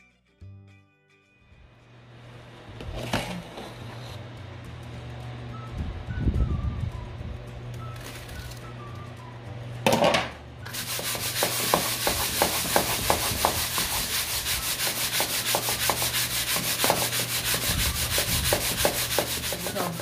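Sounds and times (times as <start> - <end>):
sugar rasping in shaken baking tray: 10.7 - 20.0.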